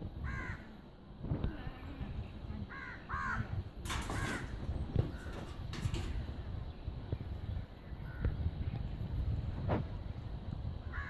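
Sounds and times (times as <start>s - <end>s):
crow cawing: 0.2s - 0.7s, 2.7s - 3.5s, 4.1s - 4.5s.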